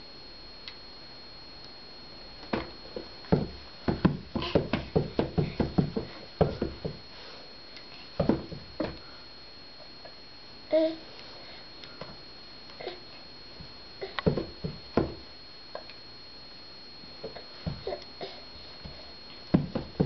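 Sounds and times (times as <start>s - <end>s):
baby kicking on carpeted floor: 2.5s - 7.0s, 8.2s - 9.0s, 14.2s - 15.2s, 17.6s - 18.0s, 18.8s - 20.0s.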